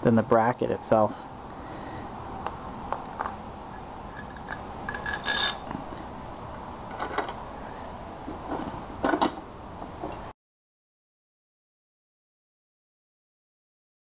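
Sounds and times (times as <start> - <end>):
steady hum: 0.0 - 10.3
metal hardware clinking: 4.1 - 5.7.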